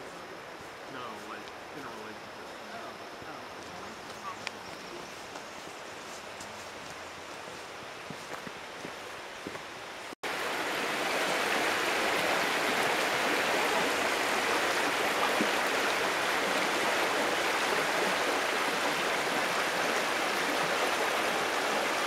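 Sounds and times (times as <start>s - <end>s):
water rushing over stones: 10.2s - 22.0s.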